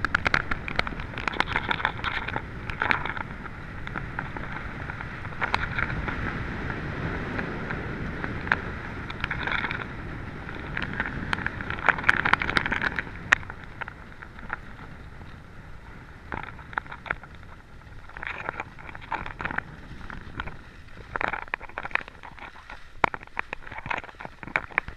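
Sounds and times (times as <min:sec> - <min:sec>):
skis scraping over snow: 0:00.0 - 0:24.9
wind on microphone: 0:00.0 - 0:24.9.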